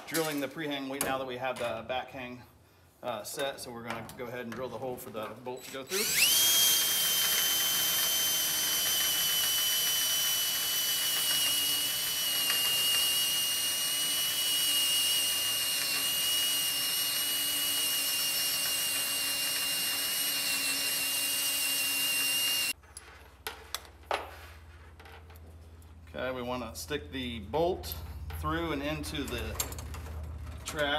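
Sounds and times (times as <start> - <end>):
cordless drill drilling metal: 5.7 - 22.8.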